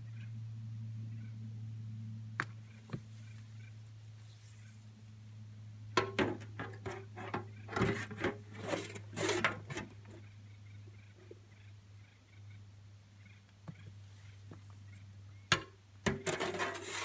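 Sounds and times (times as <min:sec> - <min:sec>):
garden material in wheelbarrow: 0:06.0 - 0:10.1, 0:16.1 - 0:17.0.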